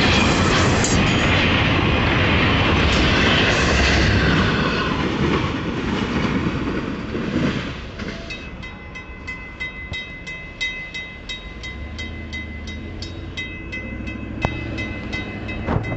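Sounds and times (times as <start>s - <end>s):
crossing warning bell ringing: 0.0s - 1.8s, 8.0s - 15.9s
freight train passing on rails: 0.0s - 15.9s.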